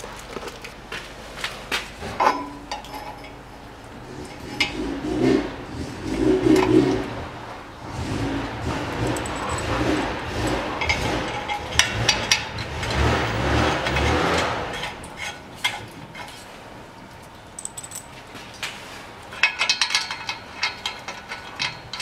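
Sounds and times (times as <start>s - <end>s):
metal springs clicking and rattling: 4.0s - 7.2s, 8.5s - 22.0s.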